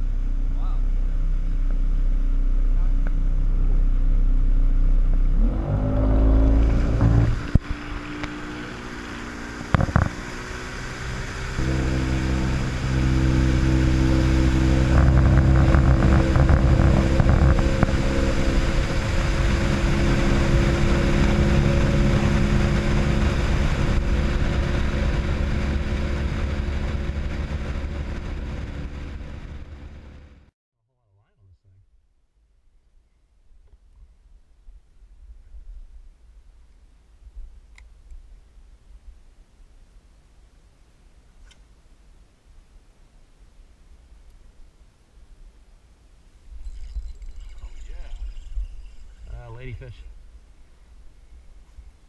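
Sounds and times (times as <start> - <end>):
motorboat engine running: 0.0 - 30.5, 46.7 - 49.4
water rushing along hull: 5.6 - 30.0.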